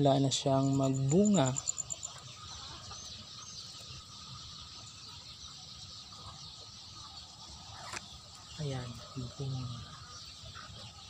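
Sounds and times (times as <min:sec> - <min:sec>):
high insect drone: 0:00.0 - 0:03.1
faint bird chirps: 0:00.0 - 0:11.0.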